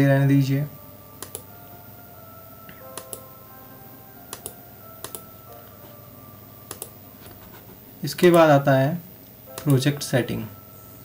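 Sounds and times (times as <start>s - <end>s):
soft background music: 0.0s - 11.0s
computer mouse clicks: 1.2s - 1.5s, 2.9s - 3.2s, 4.3s - 5.2s, 6.7s - 6.9s.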